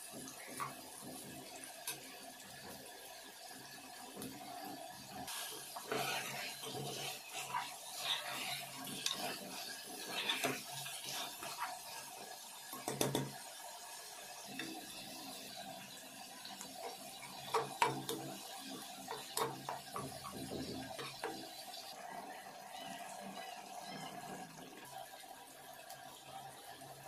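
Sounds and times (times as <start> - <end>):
spatula scraping a pan: 5.2 - 13.3, 16.7 - 21.8.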